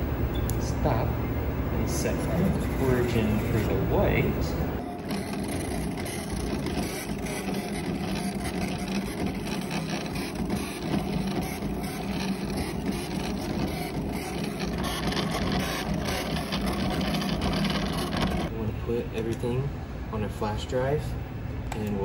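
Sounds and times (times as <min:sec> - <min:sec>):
cutter motors whirring: 0:01.8 - 0:18.5.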